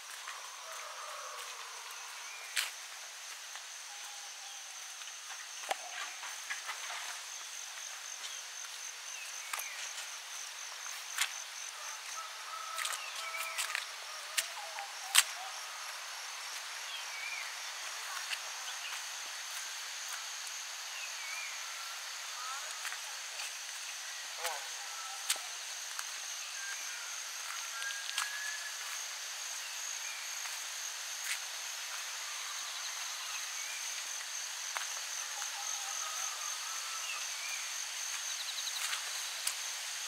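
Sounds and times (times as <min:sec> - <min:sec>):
crickets chirping: 0:00.0 - 0:40.0.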